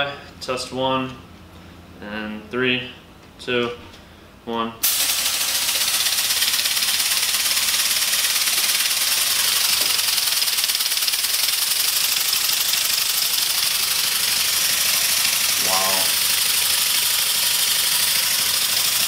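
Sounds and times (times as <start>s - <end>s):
air engine hissing and rattling: 4.8s - 19.0s.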